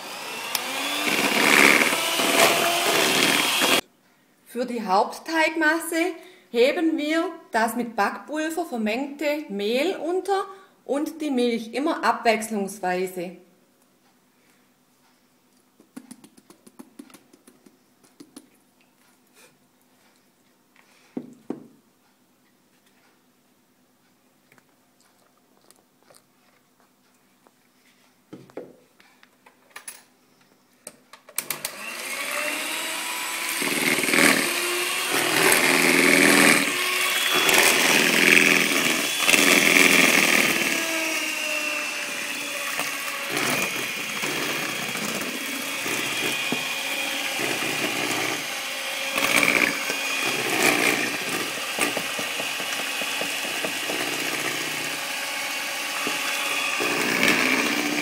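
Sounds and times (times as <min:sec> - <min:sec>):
electric hand mixer running: 0:00.0 - 0:03.8, 0:31.4 - 0:58.0.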